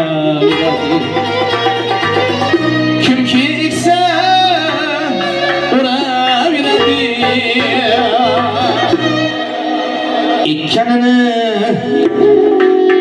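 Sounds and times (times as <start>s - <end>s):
man singing long wavering notes: 0.0s - 1.8s, 3.0s - 9.4s
folk-pop band playing: 0.0s - 13.0s.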